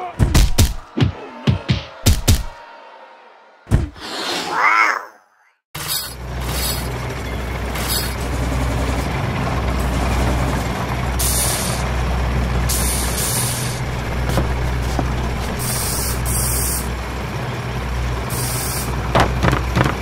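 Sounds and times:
diesel engine running: 5.8s - 20.0s
air hisses: 11.2s - 11.8s, 12.7s - 13.8s, 14.4s - 16.9s, 18.3s - 19.0s.

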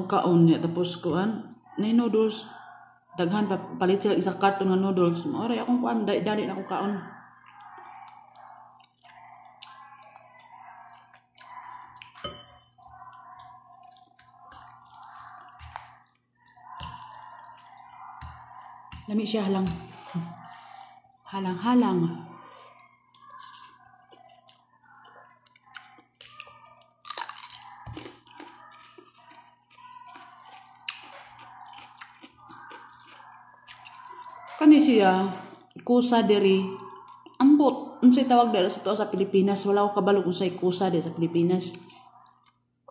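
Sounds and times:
person slurping and chewing noodles: 7.2s - 35.8s, 36.8s - 37.5s
fork clinking against bowl: 12.0s - 19.9s
crunchy cucumber bite: 27.0s - 29.4s.

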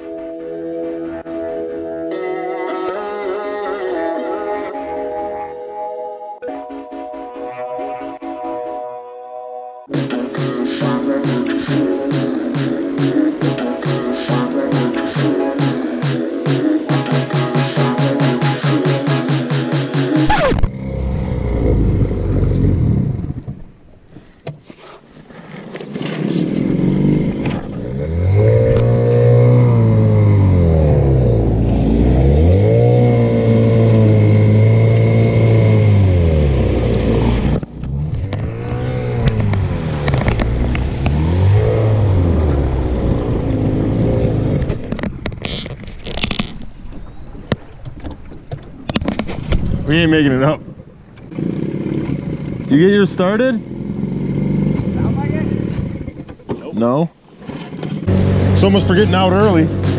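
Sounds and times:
small outboard motor: 26.1s - 45.4s, 50.7s - 52.7s.

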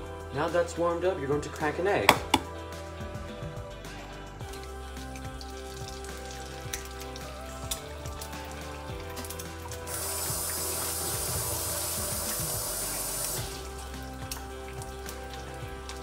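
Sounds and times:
background music: 0.0s - 16.0s
sink tap running: 2.1s - 2.5s, 5.2s - 16.0s.

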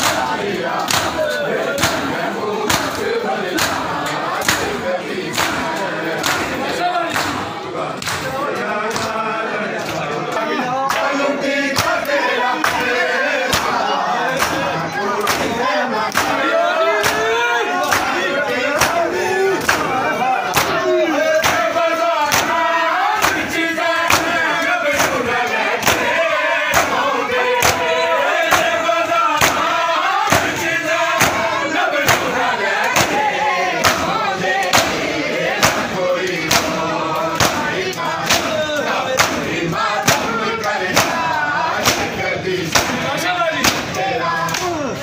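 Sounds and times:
hands slapping chests: 0.0s - 1.2s, 2.7s - 3.0s, 3.6s - 8.3s, 16.1s - 16.4s, 17.8s - 18.2s, 18.8s - 20.8s, 21.4s - 21.7s, 22.3s - 22.6s, 23.2s - 23.5s, 24.1s - 26.1s, 31.2s - 38.6s, 39.2s - 42.1s, 42.7s - 43.0s
crowd chanting: 0.0s - 45.0s.

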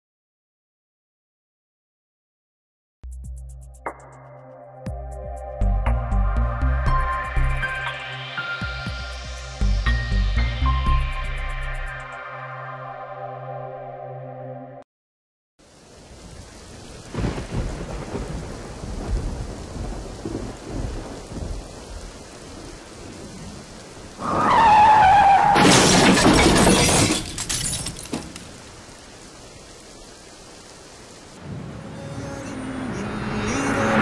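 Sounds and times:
steady rain: 15.6s - 34.0s
thunder rumbling: 16.8s - 25.2s
loud thunderclap: 17.1s - 21.6s.

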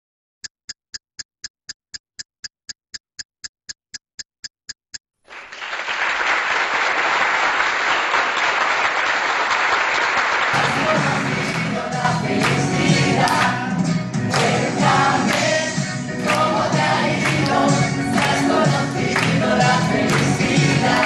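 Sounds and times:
film countdown ticking clicks: 0.4s - 5.1s
applause: 5.3s - 11.8s, 12.4s - 12.7s, 14.3s - 14.6s, 16.2s - 16.6s, 17.2s - 18.5s, 19.2s - 21.0s.

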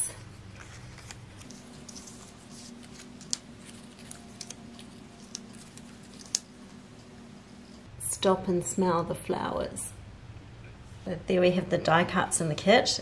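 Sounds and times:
paper rustling: 0.0s - 7.9s
faint steady hum: 0.0s - 13.0s.

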